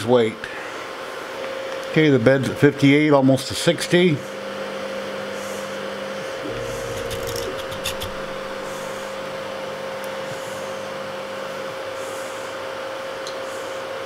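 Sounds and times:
steady hum: 4.4 - 13.7
stepper motors whining: 6.4 - 9.3.

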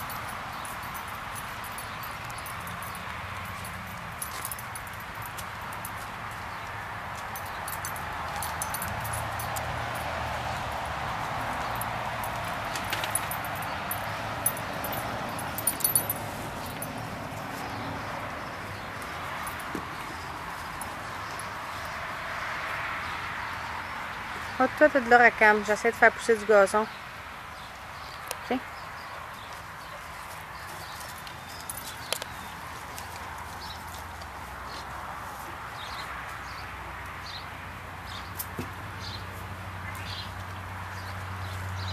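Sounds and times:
dog claws clicking on paving: 29.4 - 34.4.

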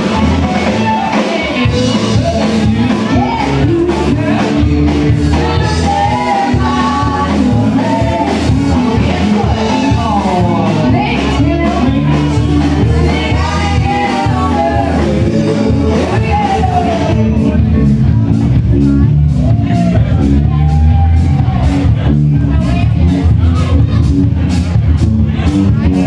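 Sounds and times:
drum beat: 0.0 - 18.1
person singing lead vocal: 0.0 - 18.2
bass guitar: 0.0 - 26.0
electric guitar: 0.0 - 26.0.

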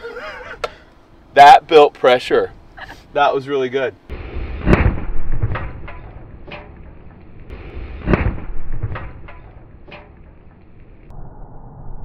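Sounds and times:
loud explosion boom: 4.1 - 6.4, 7.5 - 9.7
sharp cracks and pops: 4.2 - 11.1.

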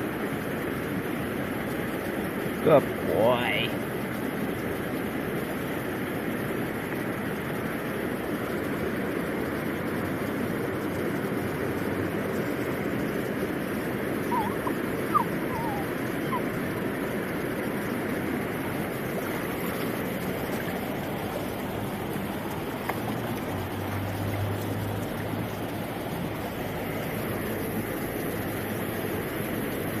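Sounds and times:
creek water over stones: 0.0 - 30.0.

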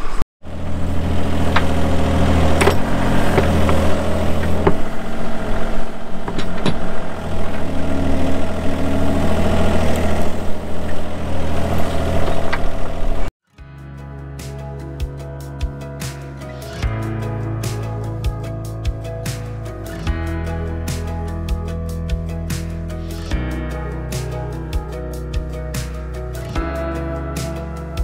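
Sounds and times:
excavator diesel engine running: 0.4 - 13.3.

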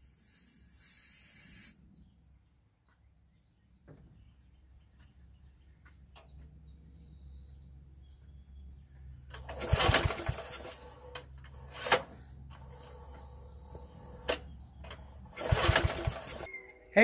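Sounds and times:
engine turning over: 9.3 - 16.5
recoil starter rope whirring: 9.3 - 16.5.

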